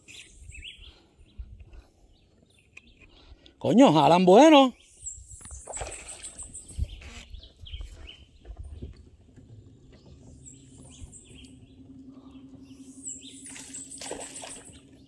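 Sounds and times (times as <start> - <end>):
low steady hum: 5.8 - 15.0.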